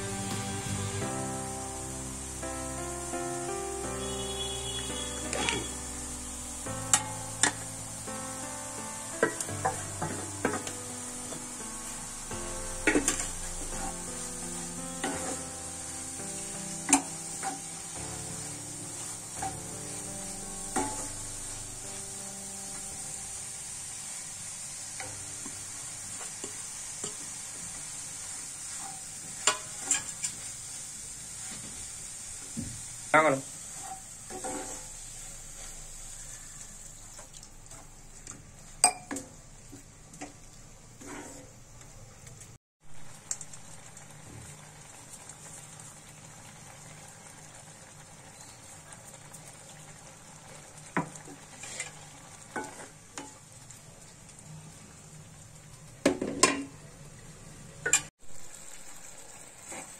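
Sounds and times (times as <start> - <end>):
food sizzling in skillet: 0.0 - 41.7, 42.8 - 56.3, 58.1 - 59.9
spatula stirring in skillet: 12.8 - 15.5, 20.7 - 21.2, 26.1 - 32.6, 33.6 - 37.9, 41.0 - 41.6, 51.0 - 53.4.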